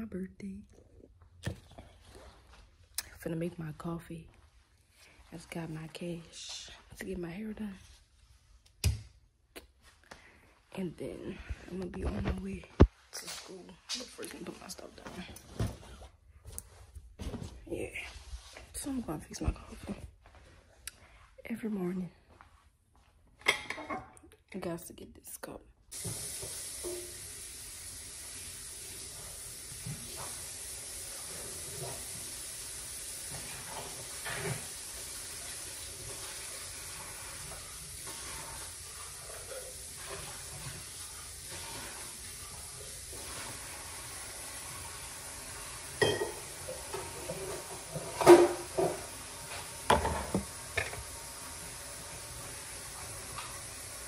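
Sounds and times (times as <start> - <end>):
cups and utensils clinking: 23.4 - 24.2, 46.0 - 49.1.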